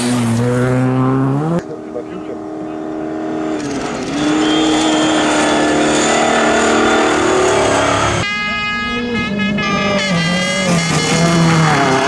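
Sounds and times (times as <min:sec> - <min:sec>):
truck engine running hard: 0:00.0 - 0:08.2
high rally car engine: 0:00.0 - 0:12.0.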